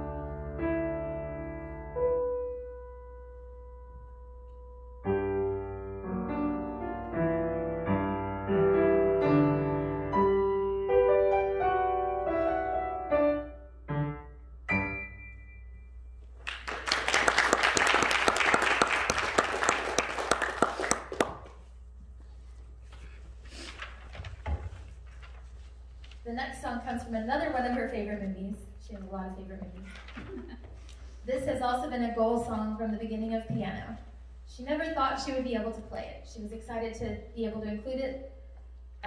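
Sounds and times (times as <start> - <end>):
solo piano playing: 0.0 - 16.2
audience applauding: 16.4 - 21.6.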